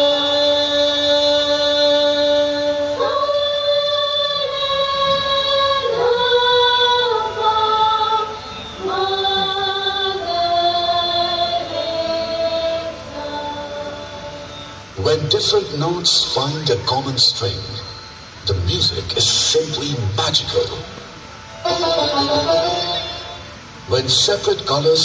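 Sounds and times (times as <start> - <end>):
woman singing long notes: 0.0 - 15.0.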